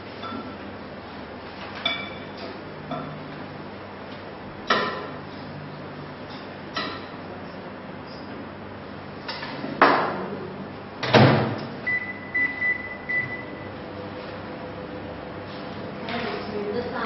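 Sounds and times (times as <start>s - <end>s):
microwave oven humming: 0.0s - 17.0s
short high keypad beeps: 11.9s - 13.6s.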